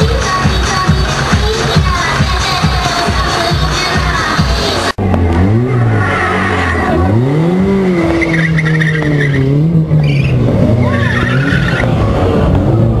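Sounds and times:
car engine revving: 0:04.2 - 0:13.0
tyres squealing: 0:05.4 - 0:12.2.

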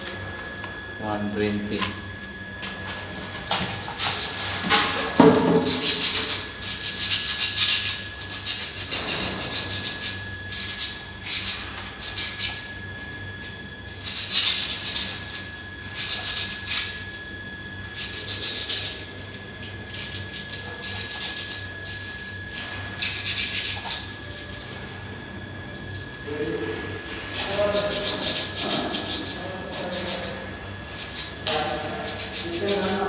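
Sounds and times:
sandpaper scratching metal: 0:05.6 - 0:12.6, 0:14.0 - 0:17.0, 0:17.9 - 0:19.0, 0:19.9 - 0:24.4, 0:27.2 - 0:33.0.

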